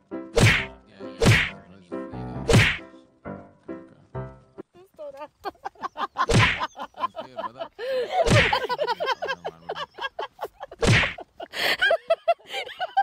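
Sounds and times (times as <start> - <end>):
heavy thuds: 0.4 - 1.6, 2.5 - 2.8, 6.3 - 6.6, 8.2 - 8.7, 10.8 - 11.2.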